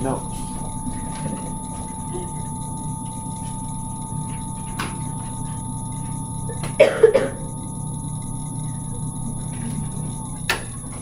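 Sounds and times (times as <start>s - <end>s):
steady background hum: 0.0s - 11.0s
thin steady tone: 0.0s - 11.0s
person coughing: 6.8s - 7.5s.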